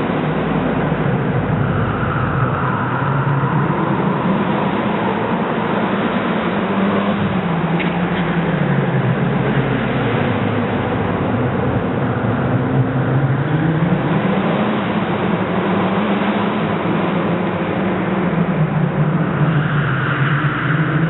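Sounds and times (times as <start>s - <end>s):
car engine revving: 0.0s - 21.0s.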